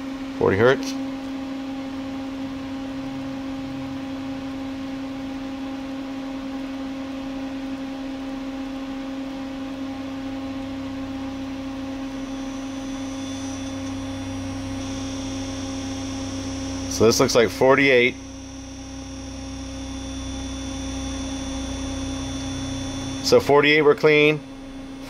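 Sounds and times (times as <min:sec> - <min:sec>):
electrical hum: 0:00.0 - 0:25.0
faint high whine: 0:01.6 - 0:25.0
faint low drone: 0:02.3 - 0:05.5, 0:09.9 - 0:25.0.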